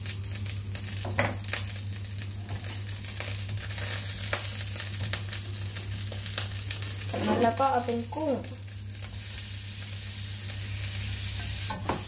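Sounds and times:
garlic sizzling in oil: 0.0s - 12.0s
spatula scraping wok: 9.0s - 12.0s.

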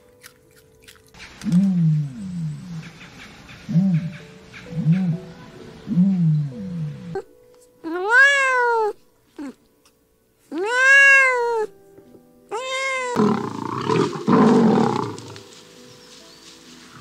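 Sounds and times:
animal drawn-out cries: 10.5s - 11.7s, 12.5s - 15.4s
animal rough growl: 13.2s - 15.4s.

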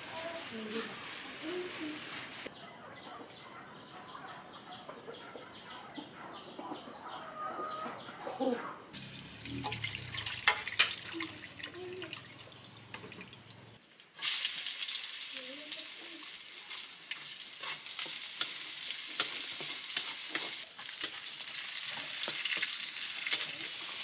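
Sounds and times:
birds chirping: 0.5s - 10.2s
broth pouring through strainer: 9.0s - 11.7s.

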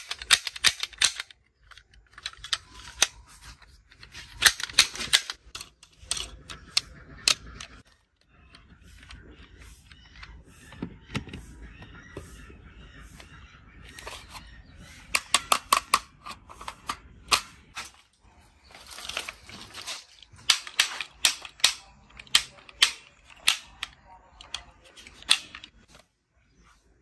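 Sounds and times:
toy pistol clicks and snaps: 0.0s - 1.4s, 20.4s - 25.7s
handling rustle: 18.6s - 21.1s.

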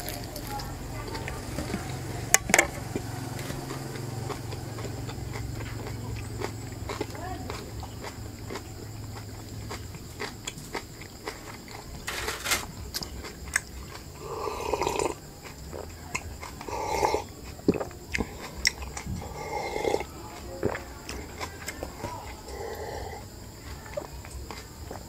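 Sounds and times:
person chewing food: 0.0s - 25.0s
person gulping a drink: 13.3s - 23.3s.

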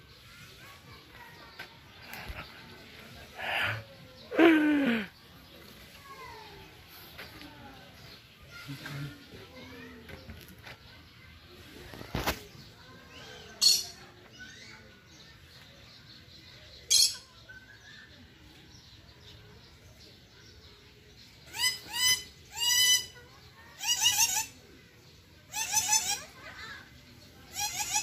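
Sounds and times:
bird harsh screeches: 23.8s - 24.6s, 25.5s - 26.3s, 27.5s - 28.0s.

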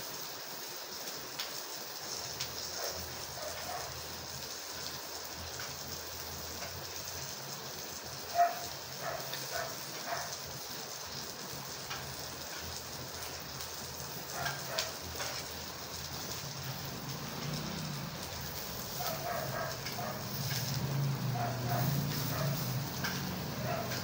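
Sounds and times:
food sizzling in a pan: 0.0s - 24.0s
metal utensil scraping pan: 22.1s - 23.3s.

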